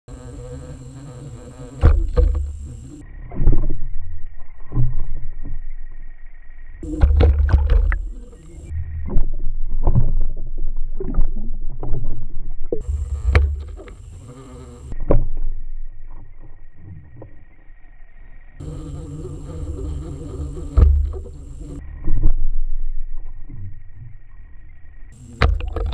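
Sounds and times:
faint high whine: 0:00.1 - 0:10.0, 0:12.8 - 0:25.9
sharp knocks and deep thumps: 0:01.5 - 0:03.7, 0:06.8 - 0:10.1, 0:12.8 - 0:15.2, 0:18.6 - 0:21.8, 0:25.2 - 0:25.9
underwater sloshing: 0:06.8 - 0:14.9, 0:18.8 - 0:21.8, 0:25.2 - 0:25.9.

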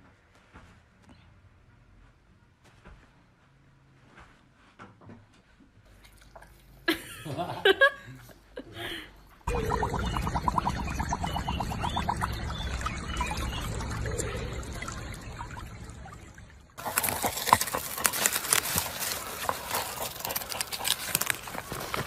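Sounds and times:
lapping or splashing: 0:09.5 - 0:22.0
water trickling: 0:09.5 - 0:22.0
dog tearing at vegetables: 0:16.8 - 0:22.0.

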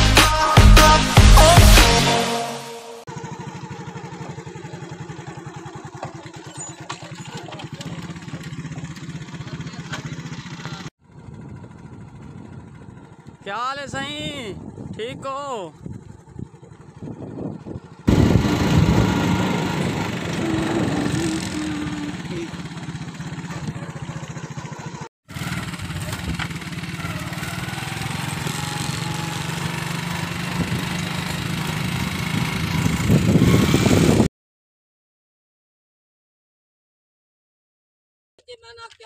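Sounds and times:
small motorcycle engine running: 0:03.1 - 0:34.3
wind on microphone: 0:14.0 - 0:22.0, 0:30.5 - 0:31.0, 0:32.1 - 0:34.3.

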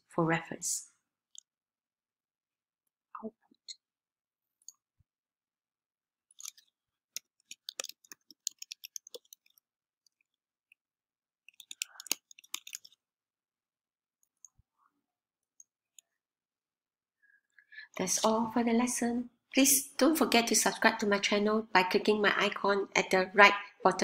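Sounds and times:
computer keyboard typing: 0:07.2 - 0:09.6, 0:11.5 - 0:13.0.

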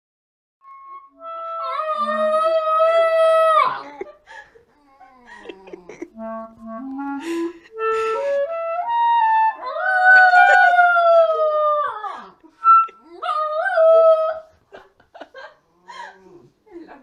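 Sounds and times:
clarinet playing notes: 0:00.6 - 0:03.0, 0:06.0 - 0:09.6, 0:12.6 - 0:13.0
puppy howling: 0:01.6 - 0:03.9, 0:09.6 - 0:14.5
puppy crying: 0:02.0 - 0:02.4.

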